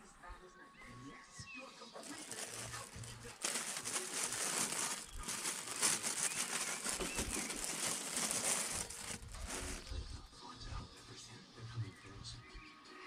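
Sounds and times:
plastic crinkling and rustling: 2.0 - 10.1.

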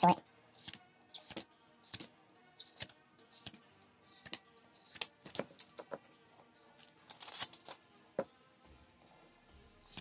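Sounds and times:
cards snapping and sliding: 0.6 - 5.9, 7.0 - 7.8.

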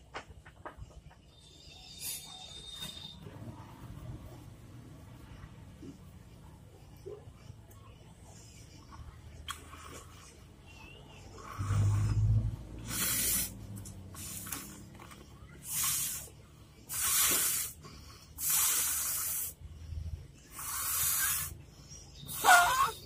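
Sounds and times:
toy water tap hissing: 12.8 - 13.6, 15.6 - 17.8, 18.4 - 19.6, 20.5 - 21.6, 22.3 - 22.9.

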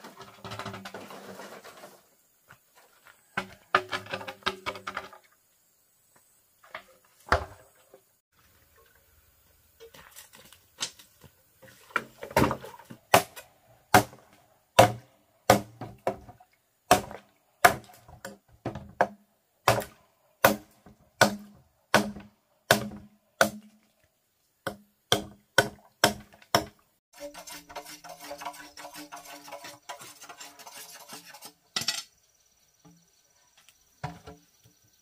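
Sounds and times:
hand tool striking bamboo: 12.0 - 16.2, 16.9 - 23.8, 24.6 - 29.4.

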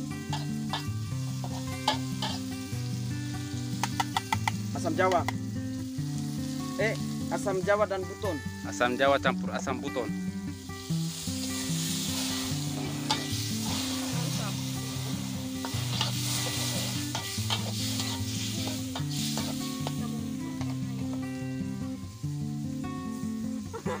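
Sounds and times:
food sizzling in a wok: 0.0 - 24.0
metal spatula knocking a pan: 3.8 - 5.4.

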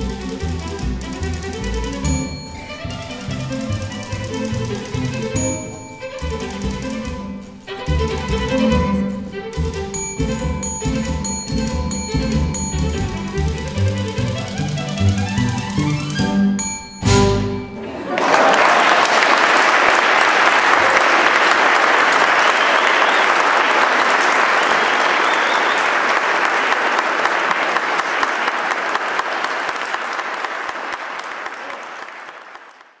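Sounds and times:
string ensemble chord: 0.0 - 18.1
audience applause: 17.8 - 33.0.

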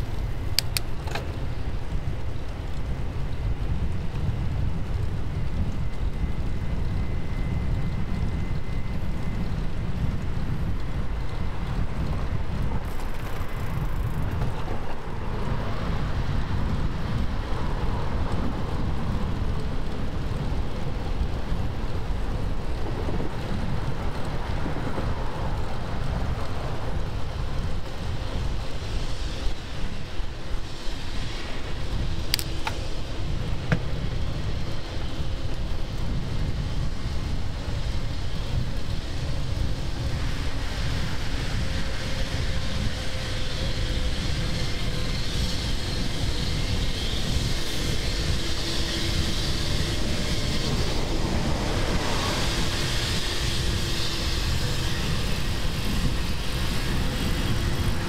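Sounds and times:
faint road and traffic noise: 0.0 - 58.0
wind buffeting microphone: 0.0 - 58.0
sharp click: 0.5 - 1.3.

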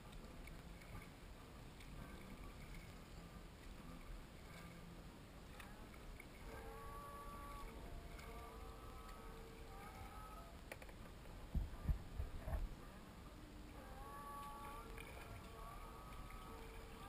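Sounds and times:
water lapping around kayak hull: 0.0 - 12.8, 13.6 - 17.0
low paddle thumps: 11.3 - 12.8.

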